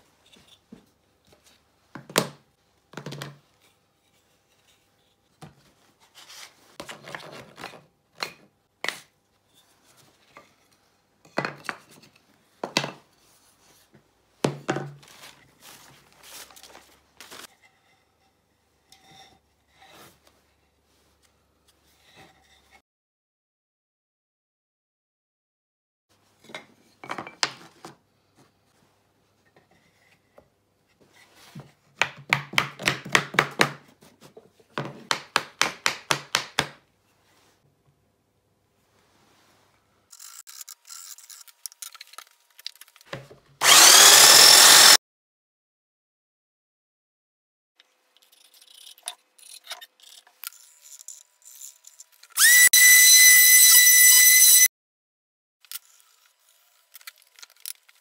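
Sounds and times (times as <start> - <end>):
hammer tapping wooden wedge: 35.1 - 36.8
orbital sander whine: 43.6 - 45.0.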